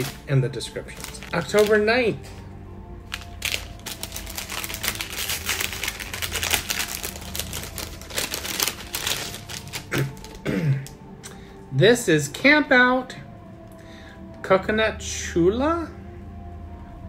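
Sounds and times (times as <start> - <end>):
paper and plastic crinkling: 0.0 - 11.0.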